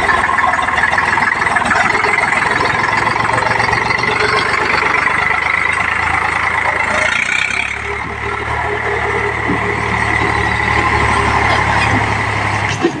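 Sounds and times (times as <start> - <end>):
tractor diesel engine under load: 0.0 - 13.0.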